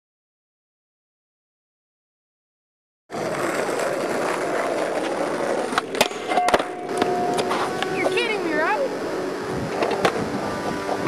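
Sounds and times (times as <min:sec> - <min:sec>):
skateboard clacking on pavement: 0:03.1 - 0:07.9
skateboard wheels rolling on pavement: 0:03.1 - 0:11.0
thin steady tone: 0:05.9 - 0:11.0.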